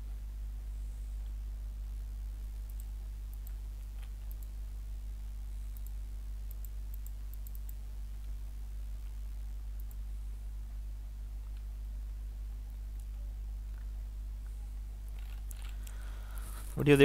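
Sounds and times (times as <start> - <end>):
low electrical hum: 0.0 - 17.0
faint computer mouse clicks: 2.7 - 4.6, 5.7 - 7.8, 9.8 - 10.0.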